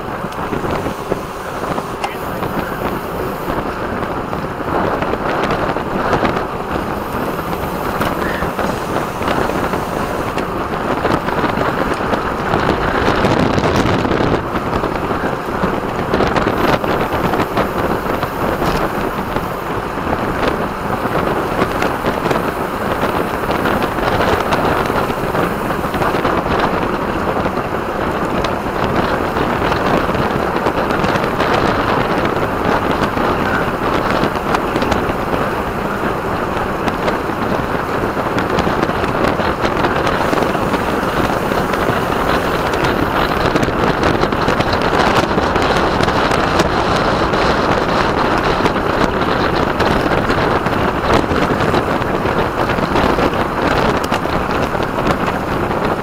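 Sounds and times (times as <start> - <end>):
wind rush on microphone: 0.0 - 56.0.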